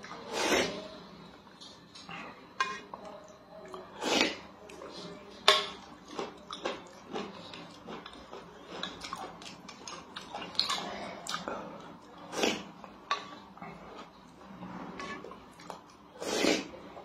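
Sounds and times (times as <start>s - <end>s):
wet chewing and smacking: 5.9s - 12.0s.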